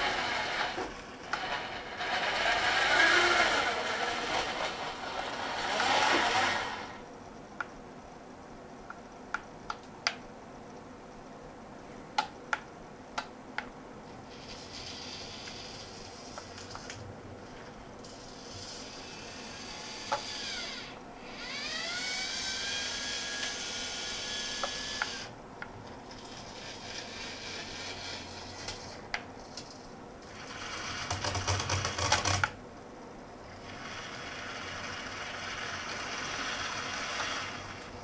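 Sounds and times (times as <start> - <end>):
gear motors whining: 0.0 - 7.1, 14.3 - 25.3, 26.1 - 29.0, 33.5 - 38.0.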